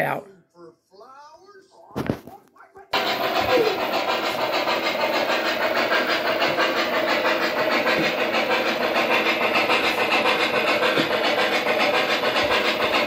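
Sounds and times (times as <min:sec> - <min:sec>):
model locomotive running noise: 0:02.9 - 0:13.0.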